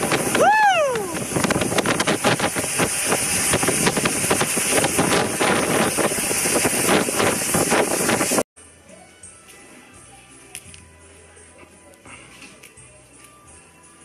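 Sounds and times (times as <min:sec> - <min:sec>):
boat engine running loud: 0:00.0 - 0:08.4
wind buffeting microphone: 0:00.0 - 0:08.5.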